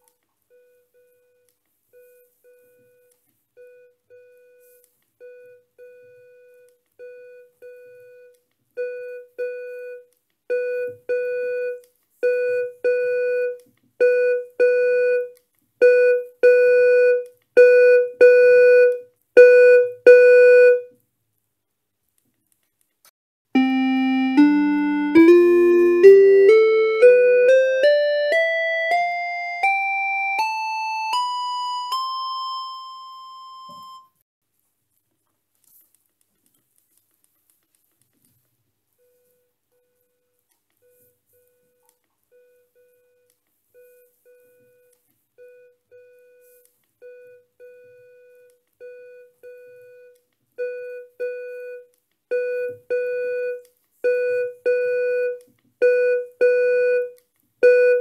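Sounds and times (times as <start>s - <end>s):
keyboard rising scale: 23.6s - 32.0s
electronic keyboard notes: 23.6s - 32.6s.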